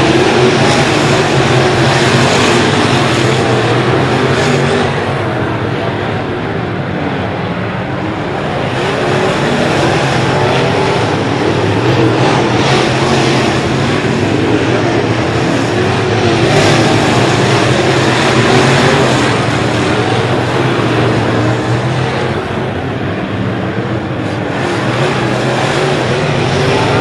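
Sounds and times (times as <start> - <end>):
race car engines running hard: 0.0 - 27.0.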